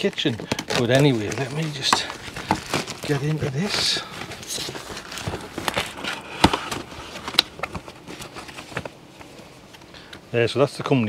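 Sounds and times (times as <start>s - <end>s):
knife cutting plastic: 0.0s - 8.9s
plastic packaging crinkling: 0.0s - 10.1s.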